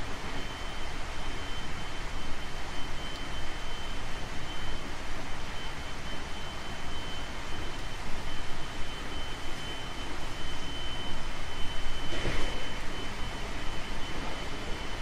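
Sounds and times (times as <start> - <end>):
high electric motor whine: 0.0 - 15.0.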